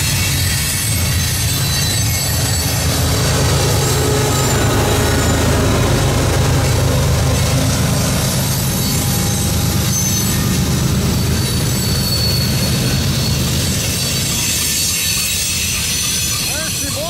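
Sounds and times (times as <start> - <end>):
diesel locomotive engine rumbling: 0.0 - 17.0
faint high wheel squeal: 0.0 - 17.0.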